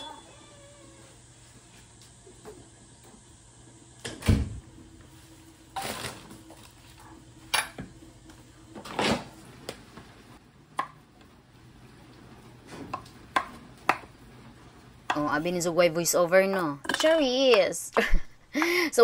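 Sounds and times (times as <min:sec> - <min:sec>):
dishes and utensils clattering: 0:16.6 - 0:17.4.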